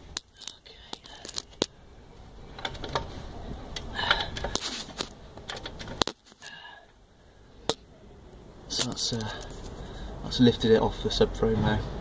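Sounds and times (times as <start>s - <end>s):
car jack metallic clicks and knocks: 2.5s - 3.1s, 3.7s - 6.4s.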